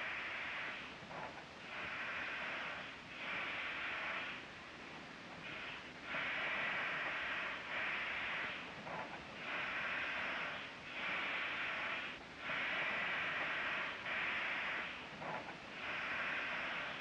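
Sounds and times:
steam hissing in bursts: 0.0 - 17.0.

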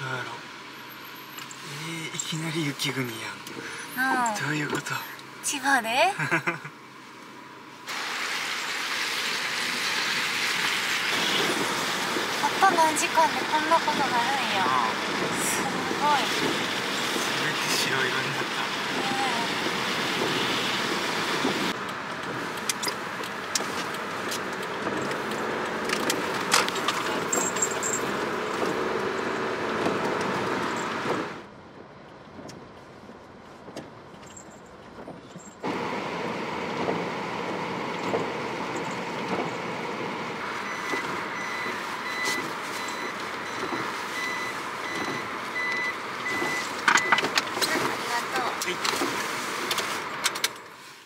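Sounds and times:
engine running: 0.0 - 50.7
tyre and road noise: 0.0 - 51.0
reversing warning beep: 40.6 - 47.3.

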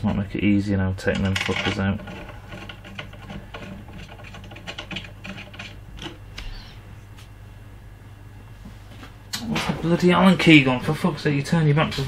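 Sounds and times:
low steady hum: 0.0 - 12.0
metallic clicks and rattles: 1.1 - 6.2.

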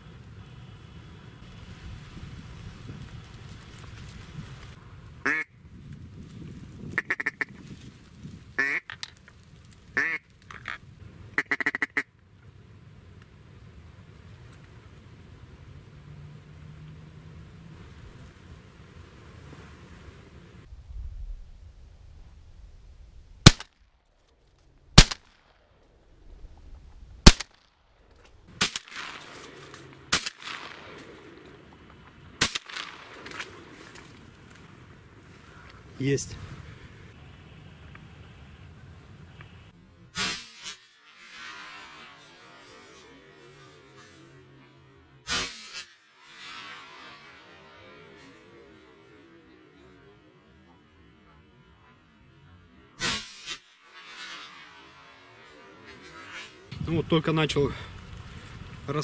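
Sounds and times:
duck call quacks: 5.2 - 5.5, 7.0 - 7.5, 8.6 - 8.9, 10.0 - 10.2, 11.4 - 12.1
shotgun shots: 23.4 - 23.8, 25.0 - 25.6, 27.2 - 27.7, 28.6 - 31.6, 32.4 - 33.8.

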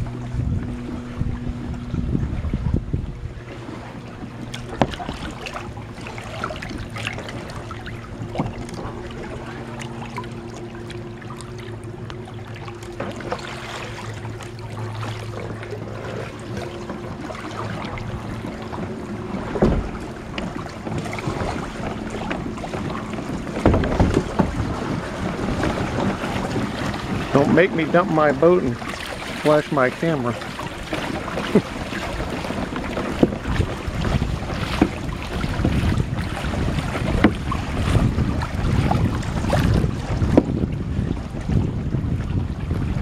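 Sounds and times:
paddle strokes splashing: 0.0 - 43.0
steady low hum: 0.0 - 43.0
knocks of kayaks: 3.6 - 10.3, 16.5 - 41.6.

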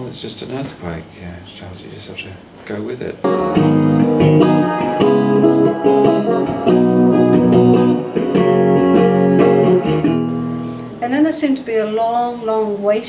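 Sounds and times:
guitar plucked notes and chords: 3.2 - 11.0.

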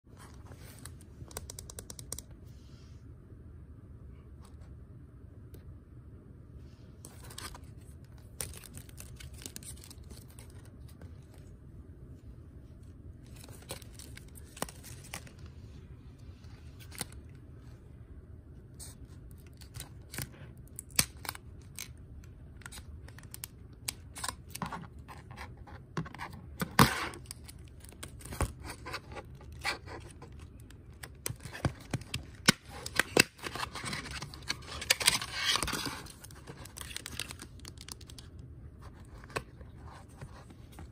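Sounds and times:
plastic wrapper crinkling and tearing: 7.1 - 11.4, 13.2 - 15.5, 16.7 - 17.4, 19.3 - 25.3, 26.8 - 40.5.

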